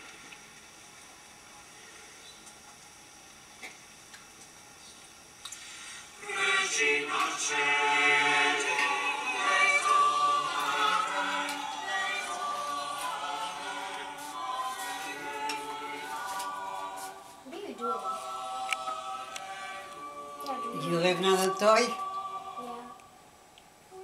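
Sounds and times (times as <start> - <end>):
mixed choir singing on television: 6.2 - 23.4.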